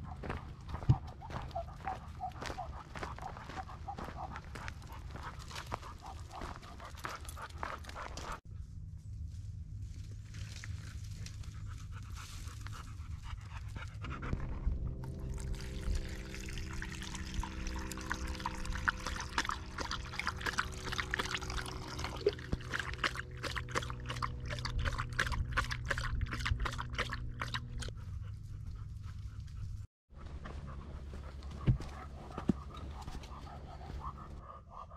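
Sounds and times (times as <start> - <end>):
dog panting: 0.0 - 8.4, 11.5 - 14.6, 19.0 - 34.9
steady low hum: 0.0 - 34.9.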